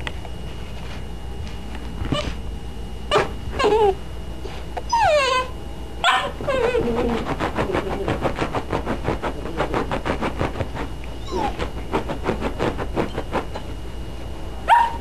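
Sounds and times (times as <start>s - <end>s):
dog whining: 2.1s - 2.4s, 3.1s - 7.4s, 11.1s - 12.0s, 14.7s - 15.0s
dog crying sharply: 11.2s - 11.6s, 14.7s - 15.0s.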